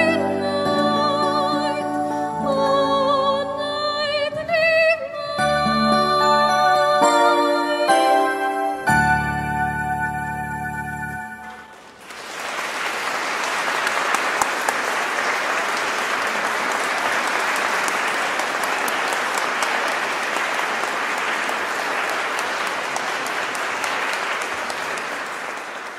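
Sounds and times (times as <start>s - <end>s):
audience applauding: 11.4s - 25.9s.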